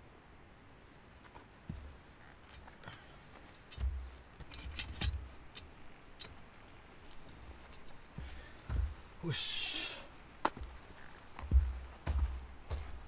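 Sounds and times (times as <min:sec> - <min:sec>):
metal hanger pole clinking: 0:03.6 - 0:06.4, 0:07.0 - 0:08.1
low thuds: 0:07.4 - 0:09.2, 0:11.4 - 0:13.0.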